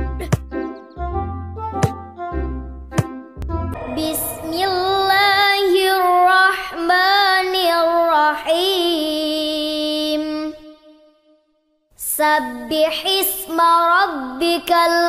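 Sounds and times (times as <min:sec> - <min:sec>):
child chanting: 0:12.0 - 0:15.0.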